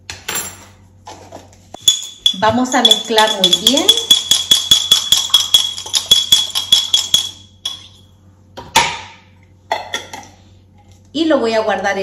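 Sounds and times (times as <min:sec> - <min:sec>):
spoon clinking in glass jar: 0:01.8 - 0:08.0.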